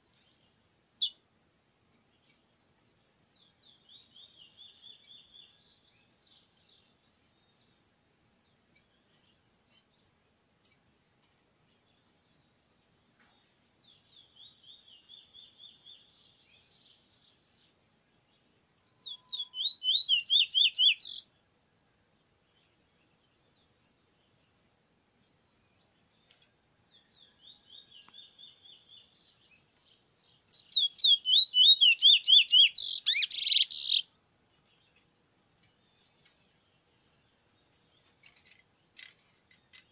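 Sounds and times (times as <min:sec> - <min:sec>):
bullfinch twittering: 0:19.0 - 0:21.2, 0:30.5 - 0:34.0.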